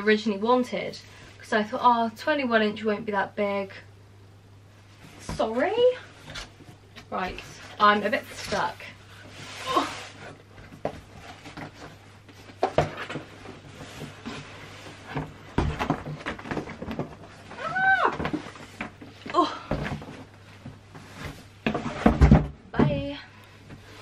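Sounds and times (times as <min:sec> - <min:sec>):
cardboard box scraping and knocking: 0:20.9 - 0:22.9.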